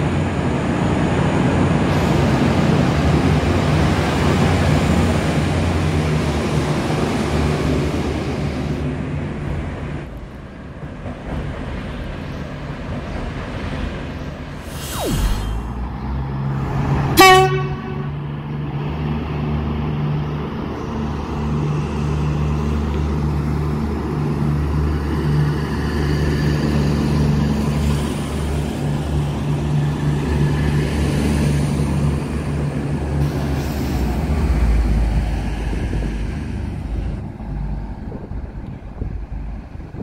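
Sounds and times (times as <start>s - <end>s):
diesel train engines droning: 0.0s - 40.0s.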